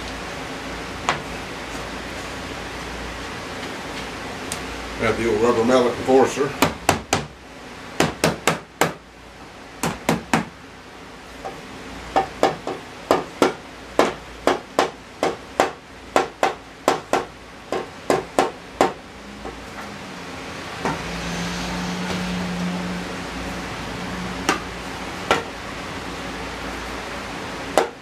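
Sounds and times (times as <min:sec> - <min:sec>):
low hum: 0:18.7 - 0:26.3.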